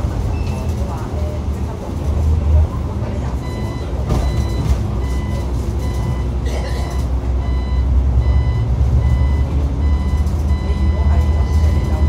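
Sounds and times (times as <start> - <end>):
bus engine rumbling: 0.0 - 12.0
short electronic warning beep: 3.5 - 12.0.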